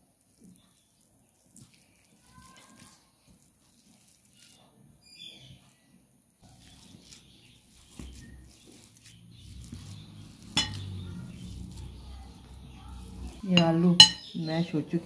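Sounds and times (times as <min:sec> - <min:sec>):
masher knocking bowl: 0:09.6 - 0:11.1, 0:13.0 - 0:14.3.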